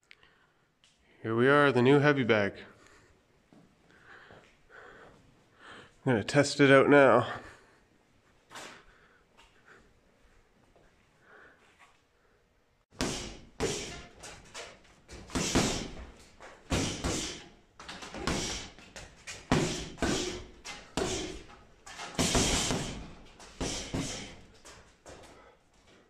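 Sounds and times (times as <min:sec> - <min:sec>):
punches thudding on heavy bag: 0:13.0 - 0:14.2, 0:15.2 - 0:16.1, 0:16.7 - 0:17.5, 0:18.1 - 0:18.8, 0:19.5 - 0:21.5, 0:22.1 - 0:24.4.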